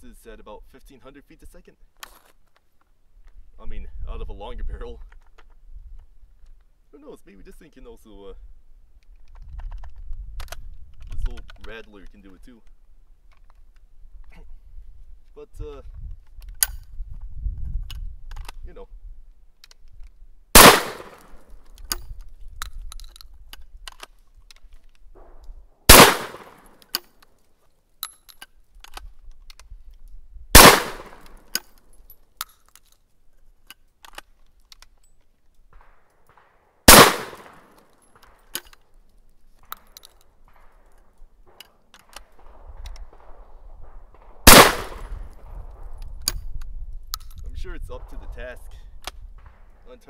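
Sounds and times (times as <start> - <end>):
shotgun action clicking: 19.6 - 27.4, 28.0 - 33.0, 33.6 - 47.4
shotgun shots: 20.5 - 21.4, 25.2 - 26.8, 30.5 - 31.5, 35.7 - 38.5, 40.4 - 46.0.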